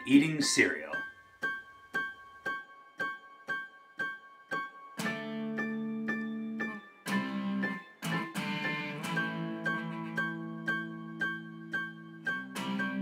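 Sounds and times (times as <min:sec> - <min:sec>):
keyboard music: 0:00.0 - 0:13.0.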